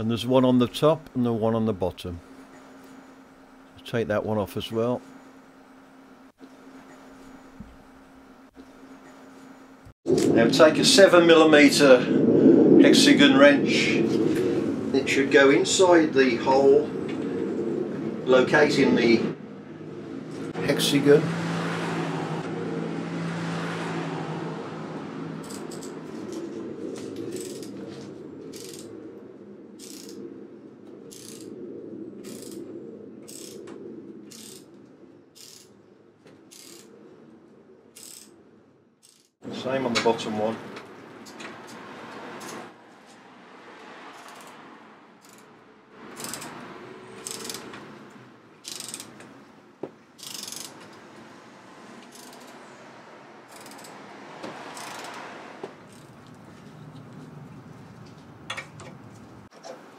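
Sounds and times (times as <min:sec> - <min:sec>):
steady low hum: 0:00.0 - 0:23.4, 0:24.0 - 0:41.7
socket ratchet clicking: 0:38.0 - 0:38.3, 0:44.2 - 0:44.6, 0:45.2 - 0:45.5, 0:46.2 - 0:46.6, 0:47.2 - 0:47.7, 0:48.6 - 0:49.2, 0:50.2 - 0:50.8, 0:52.1 - 0:52.6, 0:53.5 - 0:54.0, 0:54.7 - 0:55.2.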